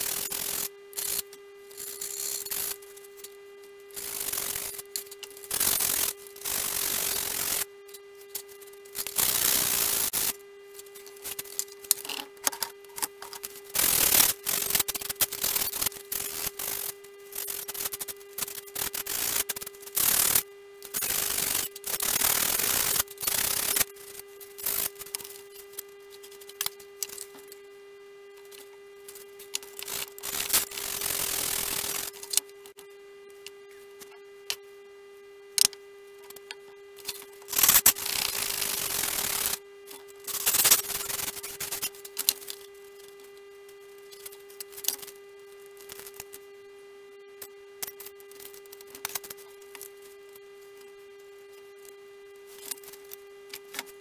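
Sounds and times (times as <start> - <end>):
electrical hum: 0.0 - 54.0.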